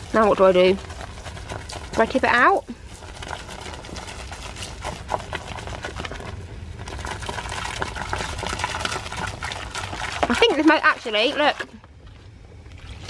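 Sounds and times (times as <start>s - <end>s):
foam crackling: 0.0s - 11.8s
hose water running into bucket: 0.0s - 11.8s.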